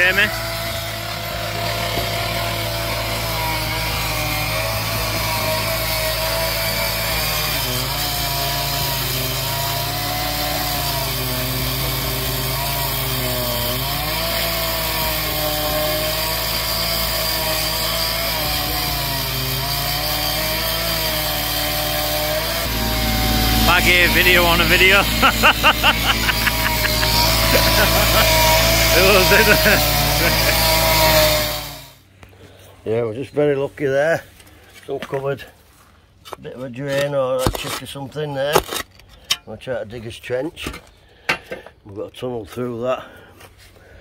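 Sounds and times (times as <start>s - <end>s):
cut-off saw cutting tarmac: 0.0s - 32.0s.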